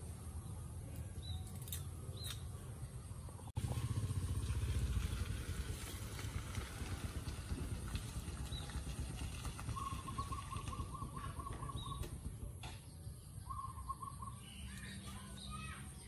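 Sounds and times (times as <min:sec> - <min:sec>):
faint bird chirps: 0:09.8 - 0:16.0.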